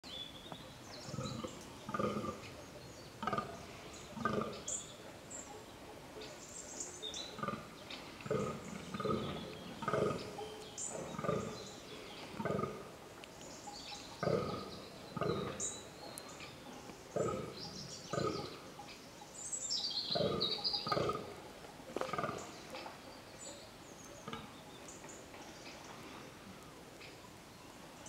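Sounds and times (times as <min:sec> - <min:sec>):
small birds chirping: 0:00.0 - 0:28.0
deer grunting: 0:01.1 - 0:02.6, 0:03.2 - 0:04.7, 0:07.4 - 0:12.9, 0:14.2 - 0:15.7, 0:17.1 - 0:18.6, 0:20.2 - 0:21.5, 0:22.1 - 0:22.8.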